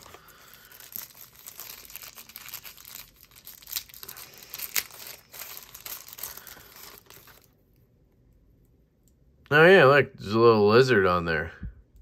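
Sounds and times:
plastic wrapper crinkling: 0.0s - 7.6s.

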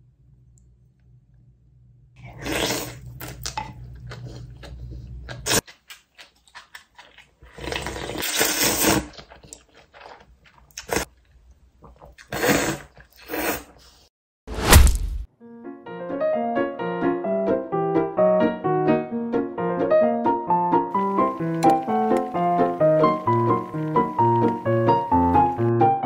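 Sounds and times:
sipping broth: 2.2s - 3.8s
slurping noodles: 2.2s - 5.6s, 7.0s - 11.1s, 11.8s - 14.1s
slurping and chewing: 2.2s - 14.0s, 21.0s - 25.5s
utensil clicks: 21.3s - 24.6s.

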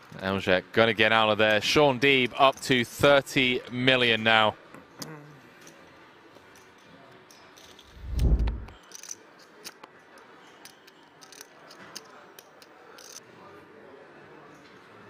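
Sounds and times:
deep whoosh and boom: 7.9s - 8.7s.

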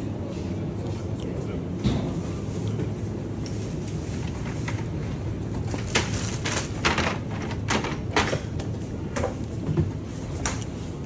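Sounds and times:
steady low hum: 0.0s - 11.0s
plastic crates knocking and clattering: 5.7s - 10.0s.

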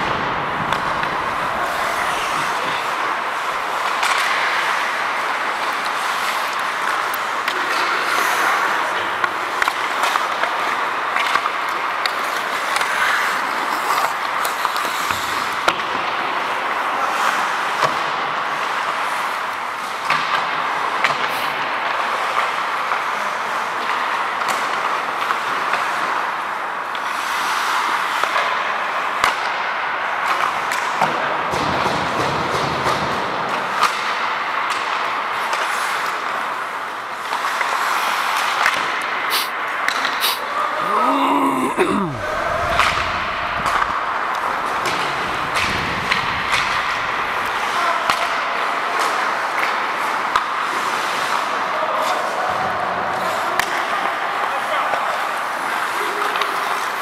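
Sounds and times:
steady rushing noise: 0.0s - 3.8s, 42.2s - 47.6s
skate blades scraping ice: 0.0s - 20.1s, 22.0s - 29.3s, 32.0s - 40.6s
hockey sticks and puck clacking: 0.0s - 40.6s, 42.6s - 57.0s.

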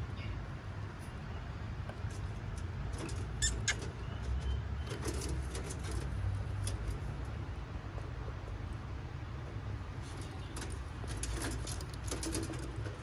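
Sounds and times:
sharp clicks and scratches: 10.1s - 13.0s.

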